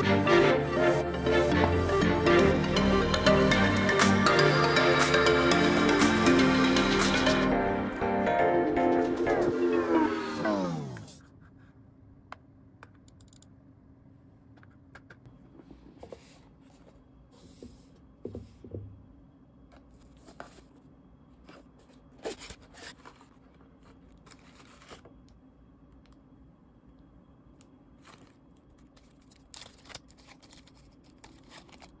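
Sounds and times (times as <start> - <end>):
low steady hum: 10.7 - 32.0
packaging rustling and tearing: 22.2 - 25.2, 28.0 - 32.0.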